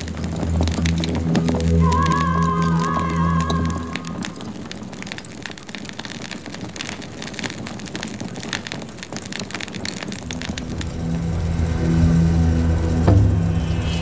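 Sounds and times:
low held music tones: 0.0 - 5.0, 10.1 - 14.0
crackling rushing noise: 0.0 - 14.0.

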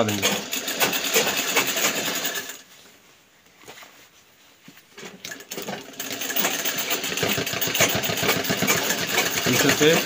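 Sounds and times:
sewing machine stitching: 0.0 - 2.6, 5.2 - 10.0.

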